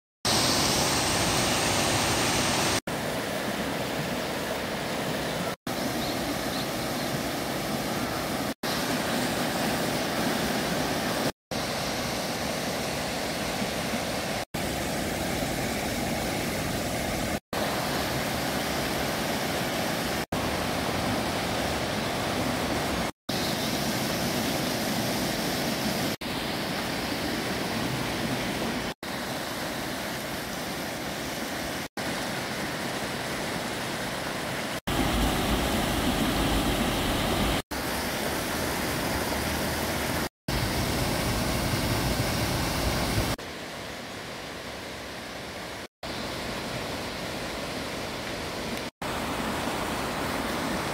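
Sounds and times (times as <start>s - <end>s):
mountain stream rushing over boulders: 0.3s - 50.9s.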